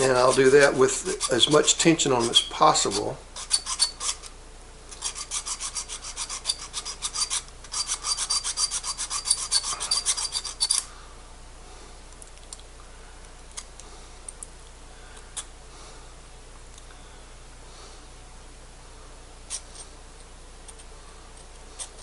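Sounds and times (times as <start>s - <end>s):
file rasping on metal contacts: 0.0s - 4.3s, 4.9s - 10.9s, 19.5s - 19.8s, 20.7s - 22.0s.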